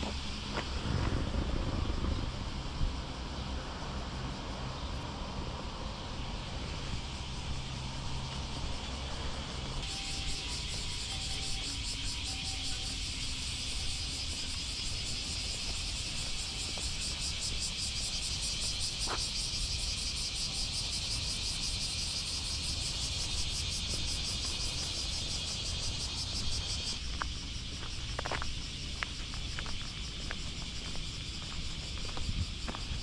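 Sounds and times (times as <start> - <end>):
cicadas shrilling: 0.0 - 33.0.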